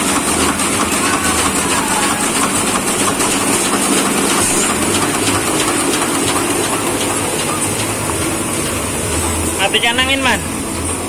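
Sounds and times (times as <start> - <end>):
printing press clatter: 0.0 - 11.0.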